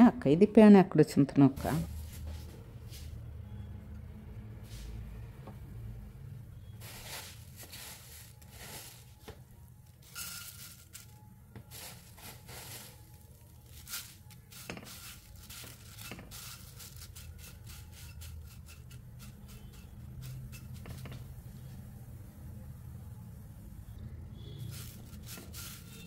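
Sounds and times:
rice flakes rustling in metal pan: 6.8s - 21.5s, 24.6s - 26.0s.

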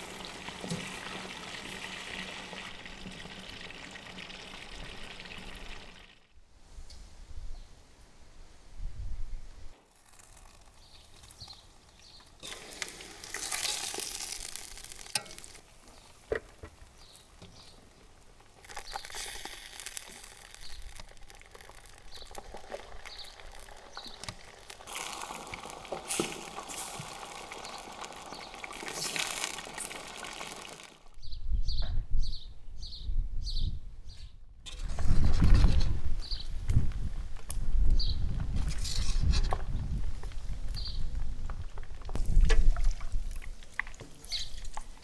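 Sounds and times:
chicken wings sizzling in oil: 12.4s - 16.3s, 18.6s - 31.1s.

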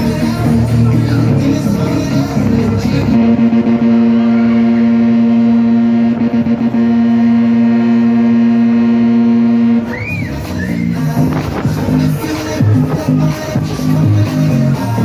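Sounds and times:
long steady tone: 3.0s - 10.1s.

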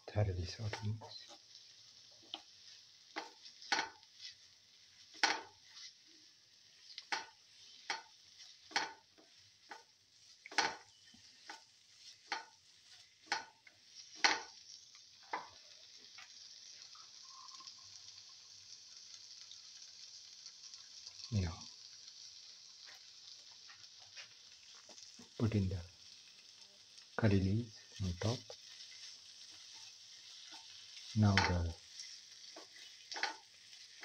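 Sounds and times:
food sizzling: 0.0s - 34.0s
spatula scraping frying pan: 2.2s - 14.7s, 28.4s - 34.0s.

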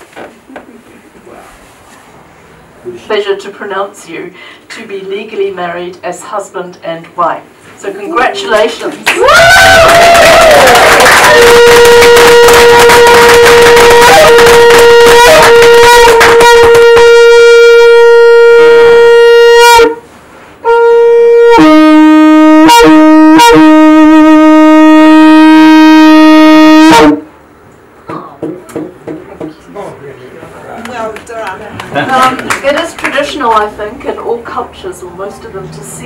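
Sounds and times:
loud horn-like wind tone: 9.4s - 20.0s, 20.6s - 27.3s.

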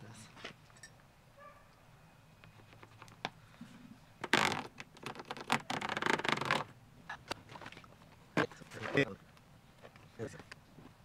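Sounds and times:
marker pen scratching plastic: 4.2s - 6.7s.

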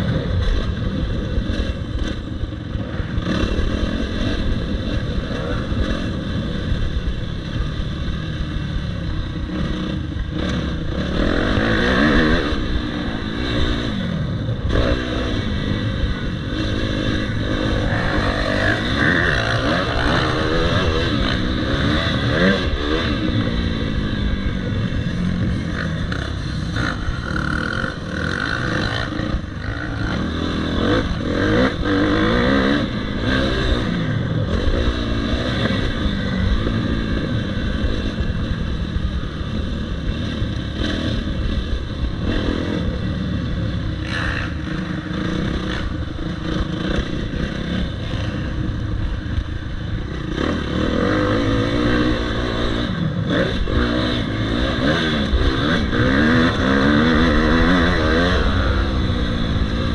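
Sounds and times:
motocross bike engine revving: 0.0s - 59.9s.

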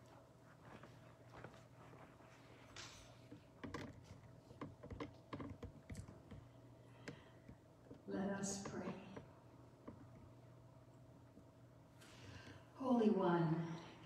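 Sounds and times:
faint steady hum: 0.0s - 14.0s
faint clicks and knocks: 2.7s - 10.5s.

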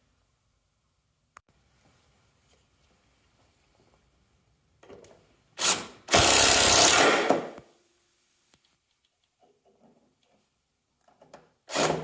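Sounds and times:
impact driver driving into wood: 5.6s - 7.6s, 11.7s - 12.0s.

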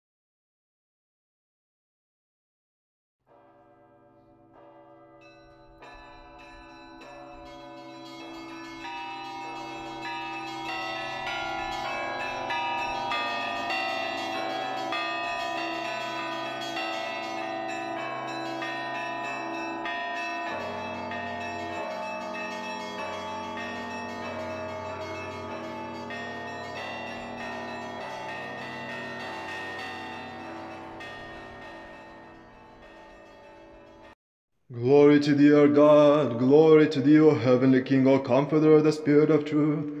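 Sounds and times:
church bells ringing: 3.3s - 34.2s, 35.2s - 40.0s
deep bell ringing: 3.4s - 34.2s.

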